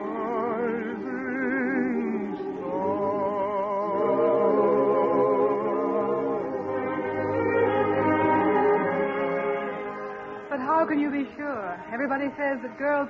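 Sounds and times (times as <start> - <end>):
operetta singer with vibrato: 0.0 - 7.3
choir and orchestra: 0.0 - 10.5.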